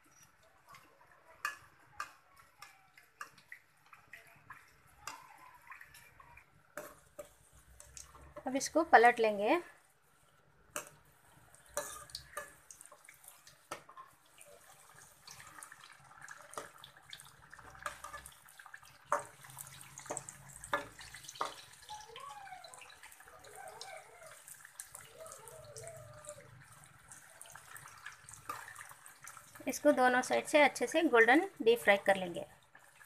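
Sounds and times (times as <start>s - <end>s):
crackling sizzle of deep-frying: 0.0s - 33.0s
metal spoon clinking against pan: 11.8s - 12.6s.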